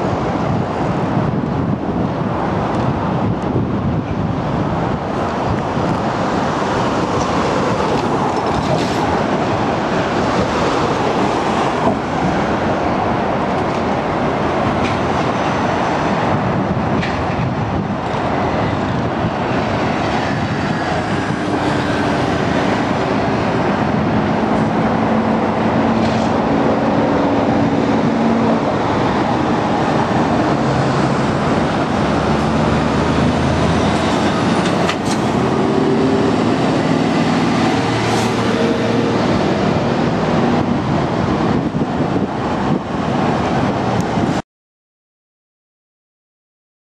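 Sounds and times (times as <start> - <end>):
road traffic passing: 0.0 - 44.4
truck engine hum: 17.5 - 42.8.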